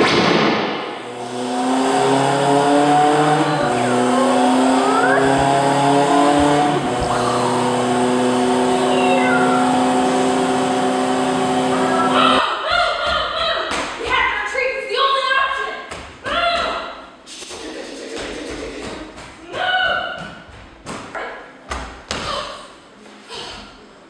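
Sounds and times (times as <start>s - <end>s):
sustained electronic drone tones: 1.1s - 12.4s.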